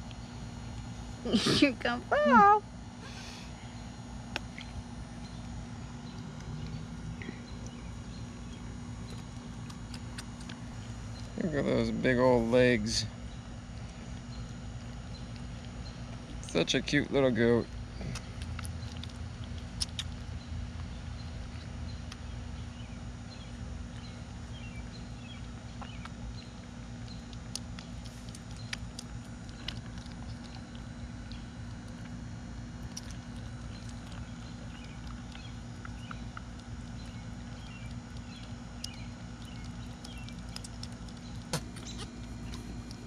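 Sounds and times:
steady low hum: 0:00.0 - 0:43.0
goat kids suckling: 0:23.9 - 0:43.0.

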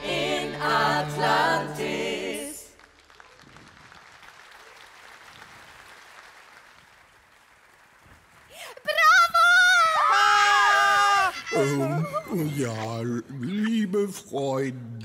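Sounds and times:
singers holding a chord: 0:00.0 - 0:02.8
audience applause: 0:02.5 - 0:09.0.

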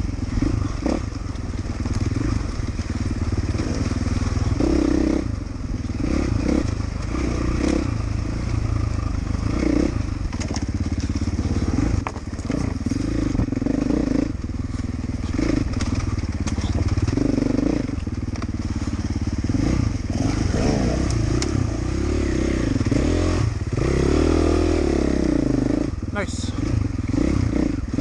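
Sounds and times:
dirt bike engine revving: 0:00.0 - 0:28.0
bike knocks and clatter: 0:10.2 - 0:11.4, 0:12.0 - 0:13.6, 0:15.5 - 0:17.3.

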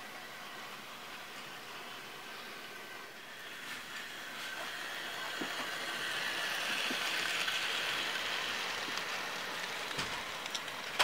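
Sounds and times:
model train motors whirring: 0:00.0 - 0:11.0.

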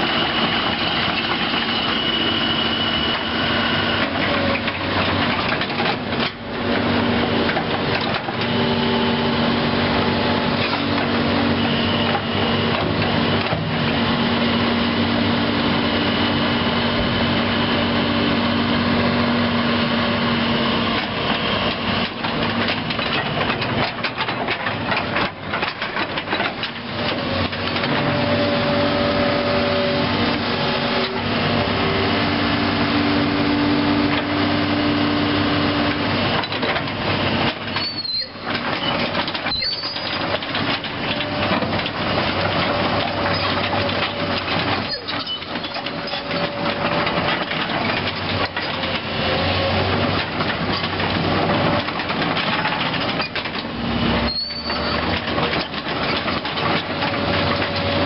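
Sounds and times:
excavator diesel engine running: 0:00.0 - 0:58.0
short high squeaks: 0:37.7 - 0:40.3, 0:44.8 - 0:46.6, 0:54.2 - 0:55.2.

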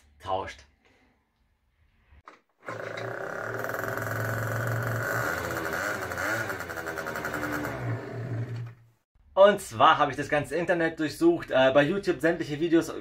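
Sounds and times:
man talking: 0:00.0 - 0:00.8, 0:09.4 - 0:13.0
scooter engine running: 0:02.6 - 0:08.8.

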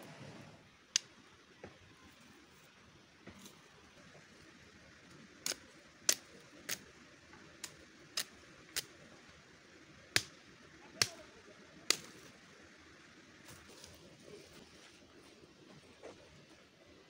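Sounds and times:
branches snapping: 0:11.9 - 0:12.3.

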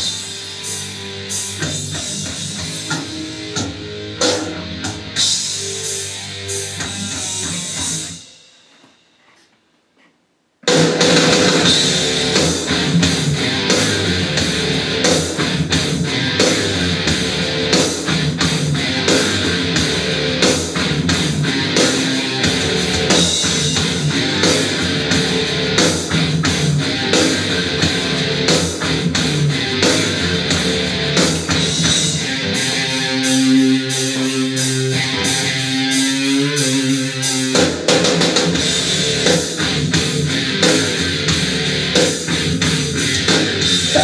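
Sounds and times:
rock song through speaker: 0:00.0 - 0:09.4, 0:10.6 - 0:44.0.

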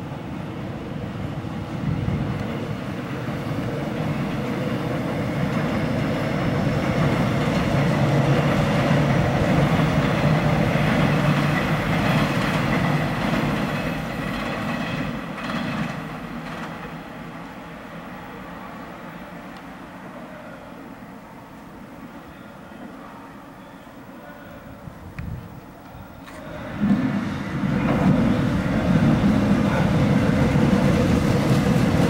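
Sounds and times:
train wheels rumbling: 0:00.0 - 0:20.2, 0:24.9 - 0:32.0
wheels clacking over rail joints: 0:03.4 - 0:17.2, 0:25.2 - 0:32.0.

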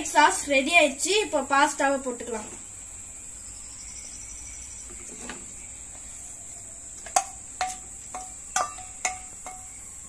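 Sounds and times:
faint high hiss: 0:00.0 - 0:10.0
spatula clinking on metal bowl: 0:07.1 - 0:09.7.

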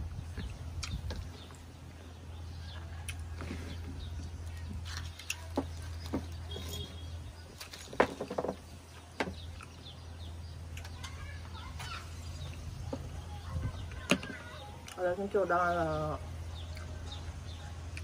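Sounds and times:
eating clicks and crunches: 0:00.3 - 0:01.7, 0:04.0 - 0:06.5, 0:08.9 - 0:11.2, 0:13.9 - 0:15.4, 0:16.6 - 0:18.0.

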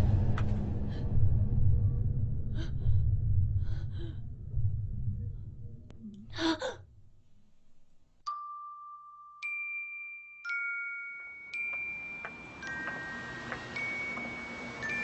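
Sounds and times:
chiming bell notes: 0:08.3 - 0:15.0.

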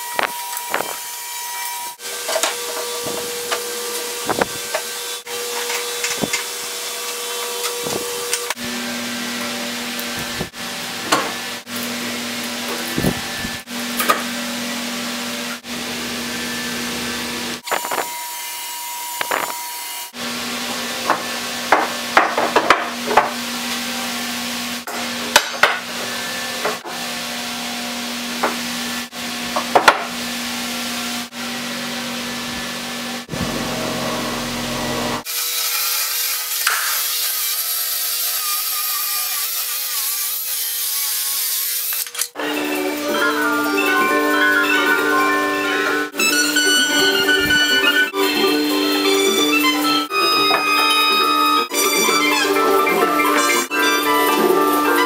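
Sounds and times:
workshop hum and hiss: 0:00.0 - 0:55.0
wooden boards and clamps knocking: 0:21.1 - 0:23.4, 0:25.3 - 0:25.8, 0:29.6 - 0:30.1.

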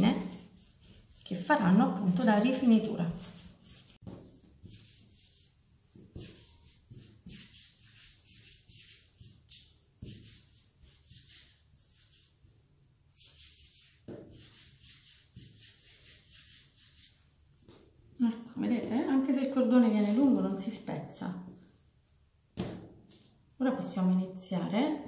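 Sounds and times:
dough rolling soft swishing: 0:00.0 - 0:18.2.

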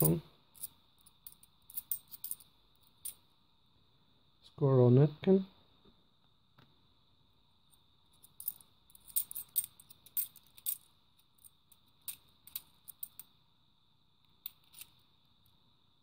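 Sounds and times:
coins clicking and clinking: 0:00.0 - 0:03.2, 0:08.2 - 0:13.3.

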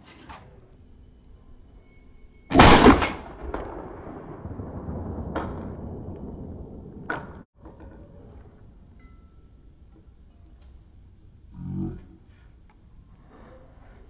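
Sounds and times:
loud shotgun shot: 0:02.5 - 0:07.4.

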